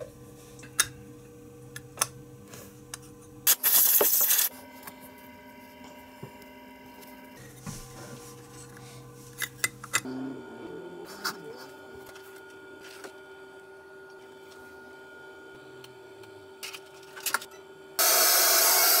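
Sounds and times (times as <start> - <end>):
steady low hum: 4.5 - 18.0.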